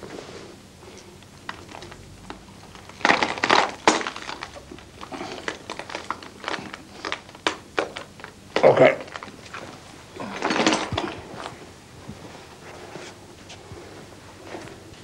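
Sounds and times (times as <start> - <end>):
broken glass crunching: 2.7 - 8.3.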